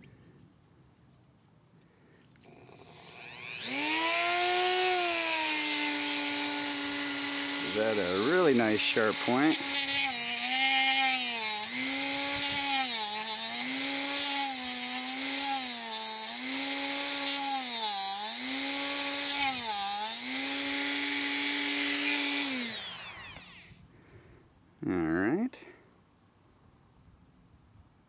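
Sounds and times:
rotary tool grinding whine: 2.5 - 23.8.

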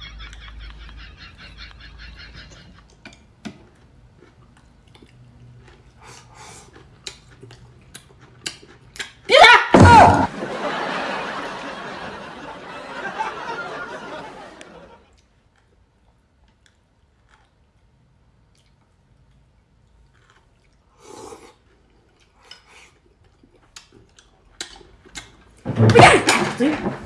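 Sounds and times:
soft chewing and slurping: 2.7 - 9.3, 15.1 - 25.6.

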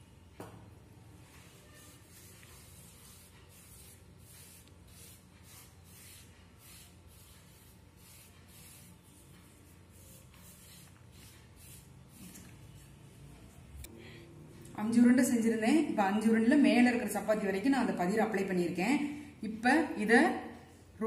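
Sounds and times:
palm rubbing dough: 1.1 - 13.6.

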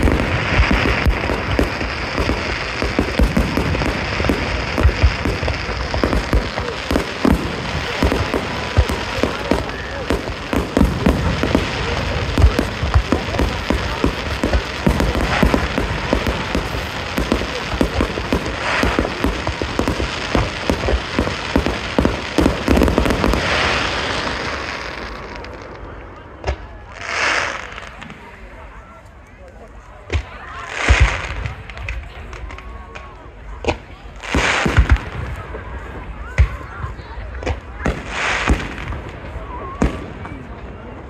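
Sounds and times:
fireworks bangs and crackles: 0.0 - 41.0.

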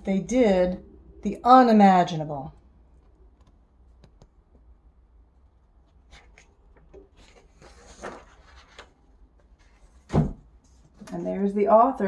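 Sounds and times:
low steady hum: 0.0 - 12.0
picture-book page turning: 5.9 - 11.2.

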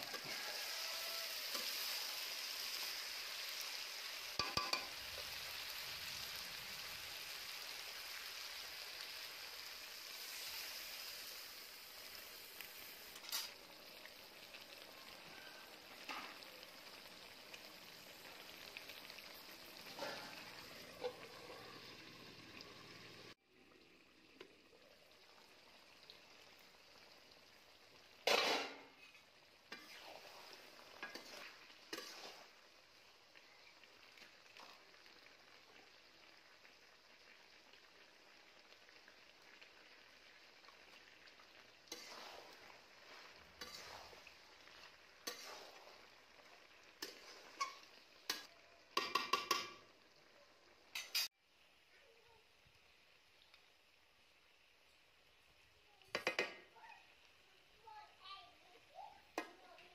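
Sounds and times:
curry sizzling in pan: 0.0 - 59.9
metal spatula scraping pan: 13.2 - 13.6, 28.3 - 32.5, 41.9 - 44.3, 45.2 - 45.9, 51.0 - 51.3.

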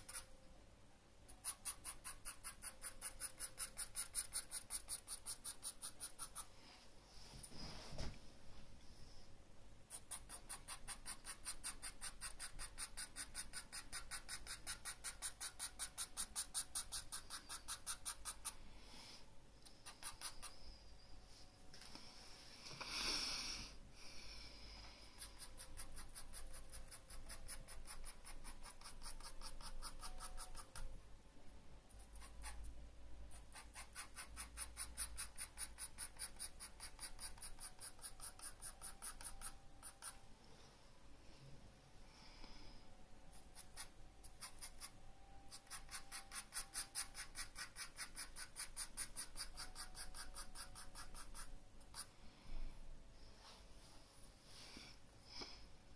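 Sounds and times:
pencil scratching on paper: 0.0 - 0.3, 1.3 - 6.5, 9.9 - 18.6, 19.8 - 20.6, 25.2 - 30.9, 33.3 - 40.2, 43.4 - 52.1.

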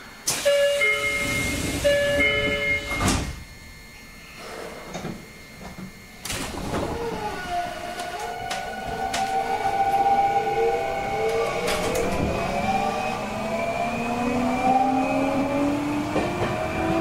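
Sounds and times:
train inverter and motors whining: 0.0 - 17.0
knock from train running gear: 16.1 - 16.6.

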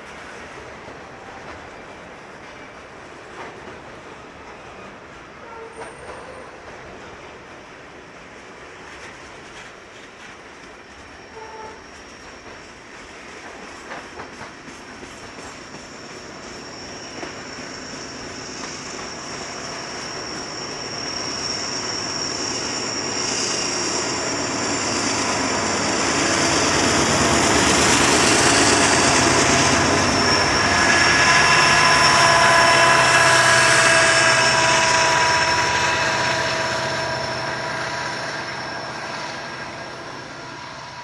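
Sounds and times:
diesel freight train passing: 0.0 - 41.0
steady whining tones: 16.2 - 41.0.

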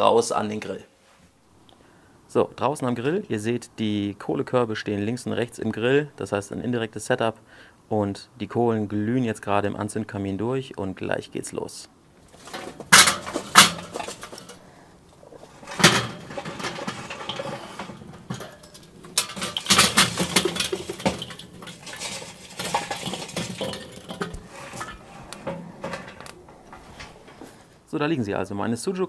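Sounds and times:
charcoal clattering against metal: 12.2 - 27.7.

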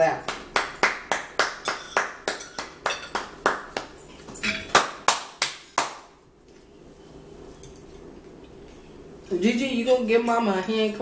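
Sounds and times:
hands clapping rhythmically: 0.2 - 4.0, 4.7 - 6.2.

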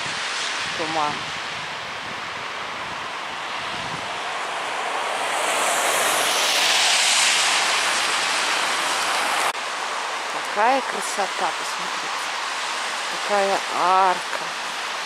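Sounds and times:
tyres hissing on wet road: 0.0 - 15.0
vehicle passing: 3.9 - 9.5.

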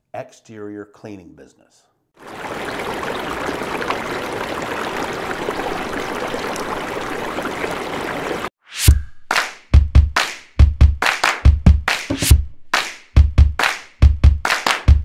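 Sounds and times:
rushing splashing water: 2.2 - 8.5.

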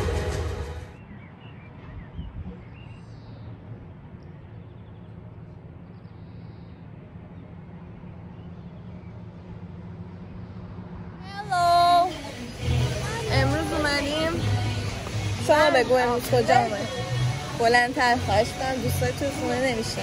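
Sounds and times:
music: 0.0 - 1.0, 12.0 - 20.0.

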